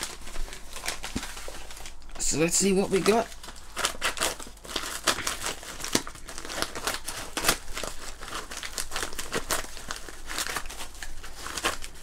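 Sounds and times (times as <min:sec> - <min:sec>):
paper crinkling: 0:00.0 - 0:12.0
scissors cutting paper envelope: 0:03.8 - 0:12.0.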